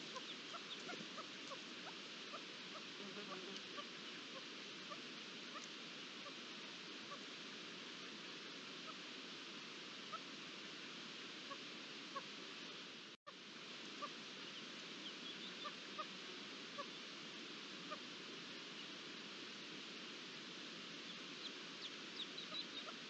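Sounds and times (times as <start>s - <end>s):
partridge calls: 0.0s - 6.4s, 14.0s - 17.0s, 21.1s - 23.0s
steady outdoor hiss: 0.0s - 23.0s.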